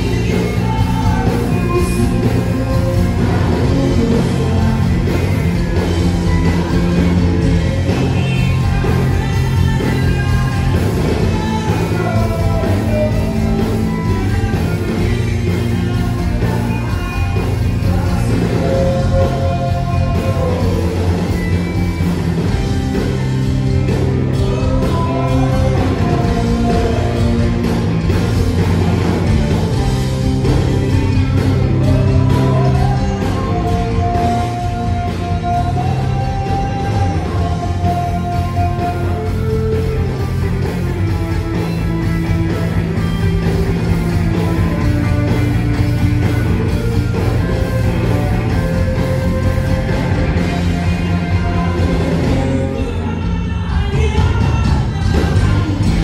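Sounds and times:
bass guitar: 0.0s - 56.0s
drums: 0.0s - 56.0s
live rock band playing: 0.0s - 56.0s.

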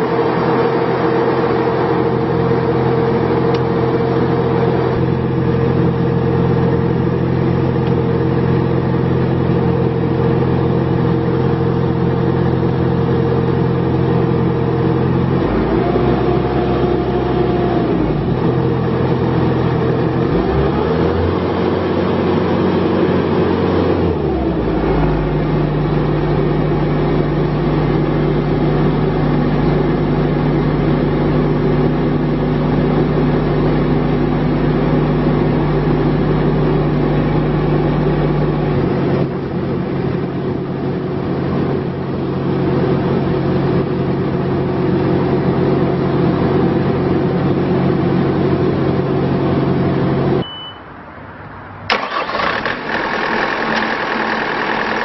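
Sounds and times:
diesel engine idling and revving: 0.0s - 55.0s.

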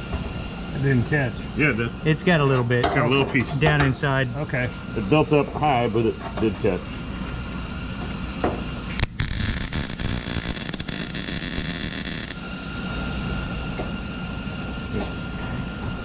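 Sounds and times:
welder arc crackling: 8.9s - 12.4s.

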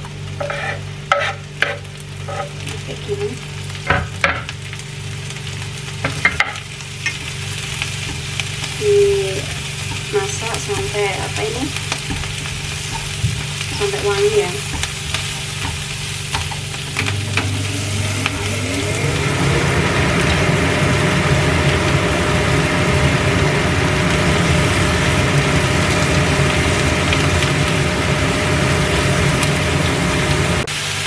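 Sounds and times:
food sizzling in hot oil: 0.0s - 31.0s
spatula knocking pan: 0.4s - 2.5s, 9.8s - 17.1s
steady low hum: 4.7s - 30.7s.

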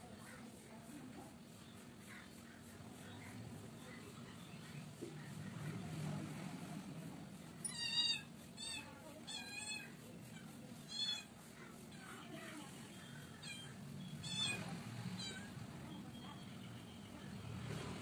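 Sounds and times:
short high-pitched animal calls: 7.6s - 11.8s, 13.2s - 15.6s.

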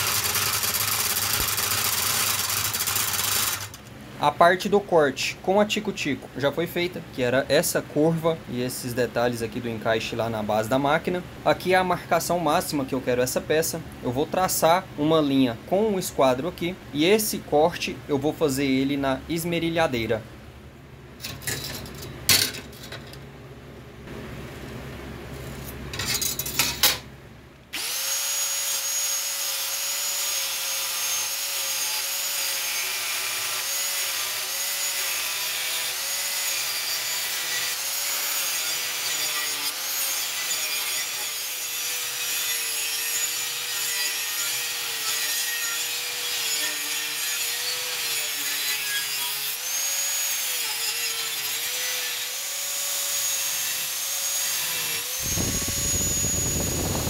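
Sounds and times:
angle grinder cutting metal sheet: 0.0s - 3.8s, 27.8s - 57.0s.

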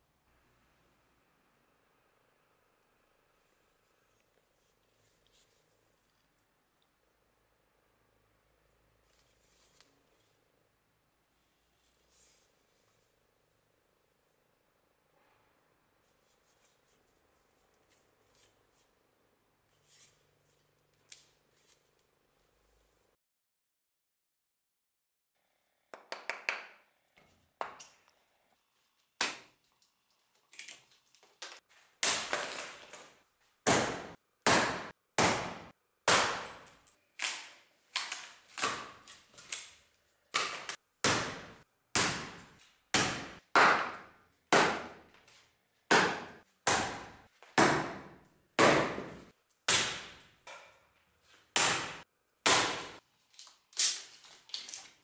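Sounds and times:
axe chopping wood: 33.6s - 36.4s, 40.4s - 45.0s, 45.9s - 50.2s, 51.6s - 53.0s.

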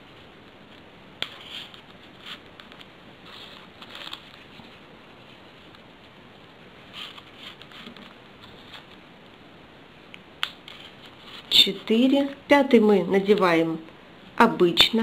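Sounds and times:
paper rustling and clicking: 0.4s - 4.8s, 6.9s - 9.0s, 10.4s - 11.6s.

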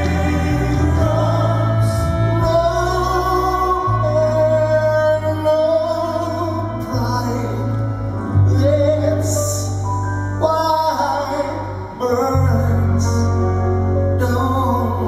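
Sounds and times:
male vocal group singing: 0.0s - 7.8s
orchestra with violin: 0.0s - 9.8s.

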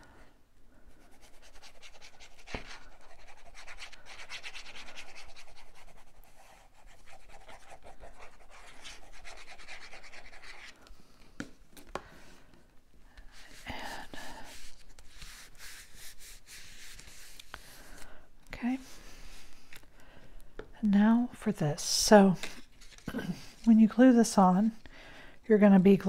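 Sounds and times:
hand smoothing paper: 0.9s - 10.8s, 13.3s - 18.0s.

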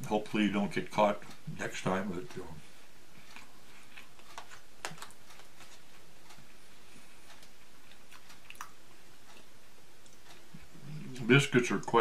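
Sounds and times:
faint steady hiss: 0.0s - 12.0s
man chewing clicks: 3.1s - 10.9s.

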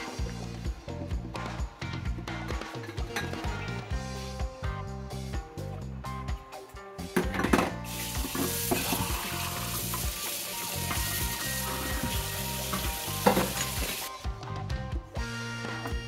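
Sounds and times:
faucet water running into sink: 7.9s - 14.1s.

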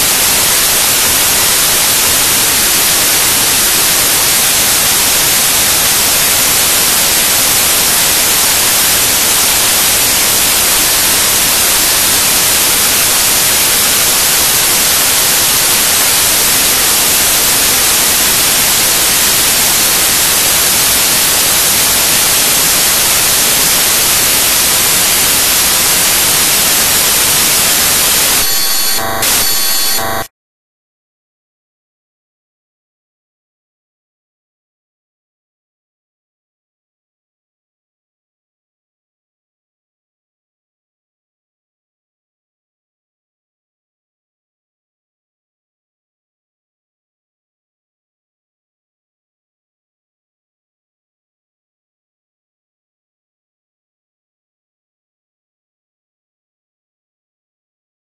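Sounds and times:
loud digital static: 0.0s - 30.3s.

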